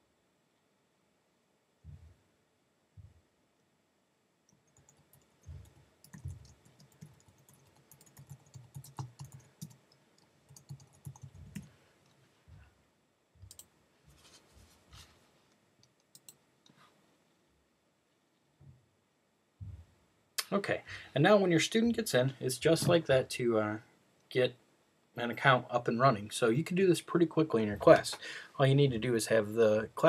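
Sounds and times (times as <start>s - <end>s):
faint keyboard typing: 4.5s - 12.2s, 13.4s - 14.4s, 15.0s - 16.8s.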